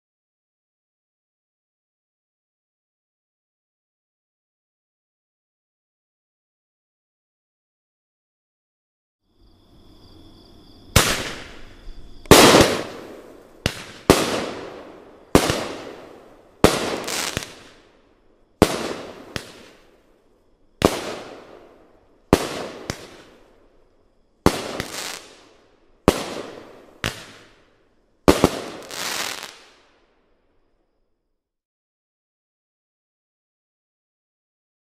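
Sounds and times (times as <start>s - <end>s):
faint fuse hiss: 9.4s - 30.9s
firework bangs: 10.9s - 17.9s, 18.6s - 20.0s, 20.8s - 23.4s, 24.4s - 27.6s, 28.2s - 29.8s.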